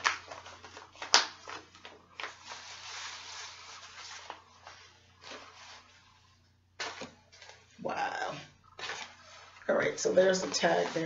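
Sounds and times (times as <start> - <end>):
plastic package crinkling: 0.0 - 5.6.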